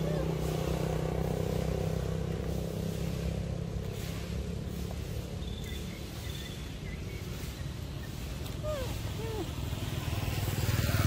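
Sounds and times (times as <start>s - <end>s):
low engine rumble: 0.0s - 11.0s
faint bird chirps: 5.4s - 9.5s.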